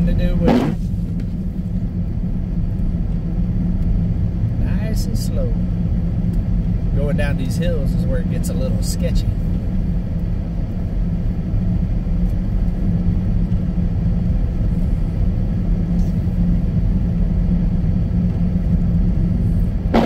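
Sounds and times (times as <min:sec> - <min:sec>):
car engine and tyres rumbling: 0:00.0 - 0:20.0
windshield wiper swish: 0:00.4 - 0:00.9.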